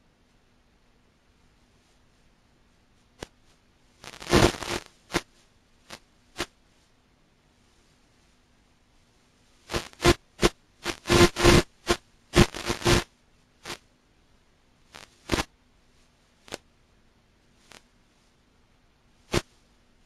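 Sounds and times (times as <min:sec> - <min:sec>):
faint steady hum: 0:00.0 - 0:20.0
static hiss bursts: 0:04.0 - 0:06.5, 0:09.7 - 0:13.8, 0:14.9 - 0:15.5, 0:19.3 - 0:19.6.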